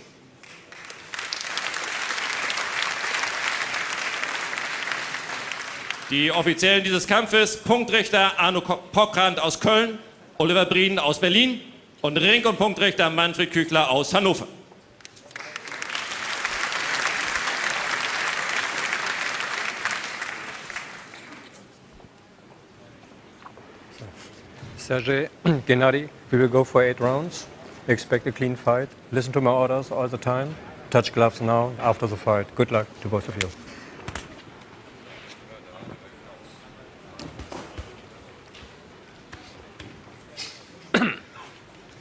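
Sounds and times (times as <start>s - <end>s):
crowd applauding: 0.4s - 6.5s, 15.2s - 21.6s.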